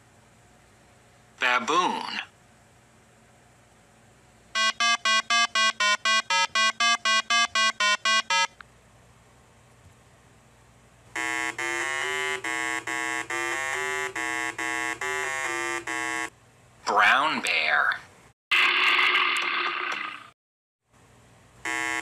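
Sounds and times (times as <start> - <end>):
deeper buzzing beeps: 4.6 - 8.6, 11.2 - 16.3
fast short game beeps: 4.6 - 8.6.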